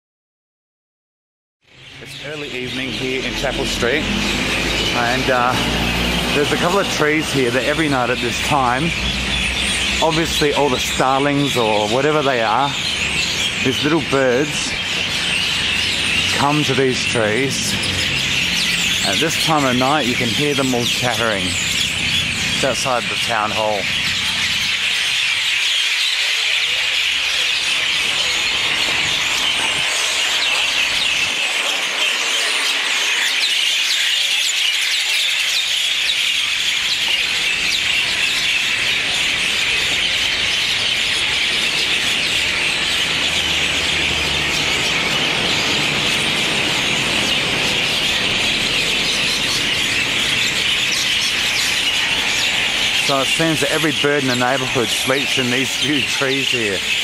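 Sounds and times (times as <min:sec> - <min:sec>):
flock of small birds chattering: 0:01.7 - 0:57.0.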